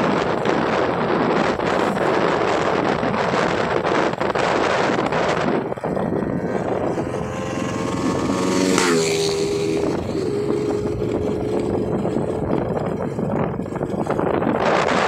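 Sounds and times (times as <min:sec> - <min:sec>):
motorcycle engine: 0:00.0 - 0:15.0
wind buffeting microphone: 0:00.0 - 0:15.0.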